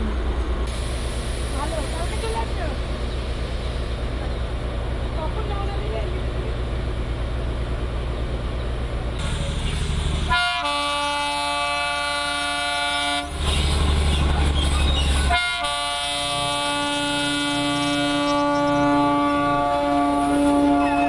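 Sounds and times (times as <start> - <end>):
locomotive engine rumbling: 0.0 - 21.0
locomotive horn blasts: 10.3 - 13.4, 15.3 - 21.0.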